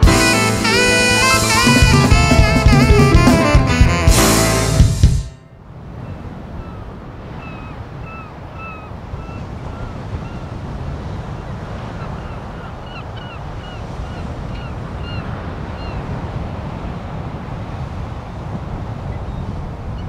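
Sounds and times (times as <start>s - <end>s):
wind buffeting microphone: 5.6s - 20.0s
surf breaking on beach: 13.5s - 20.0s.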